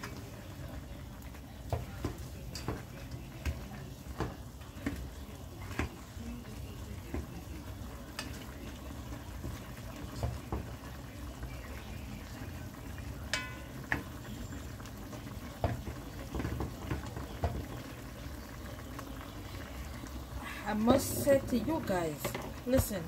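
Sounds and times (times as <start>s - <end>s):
chicken bubbling in pot: 0.0s - 23.0s
metal spoon clinking against pot: 2.0s - 3.6s, 8.1s - 8.4s, 13.2s - 14.1s.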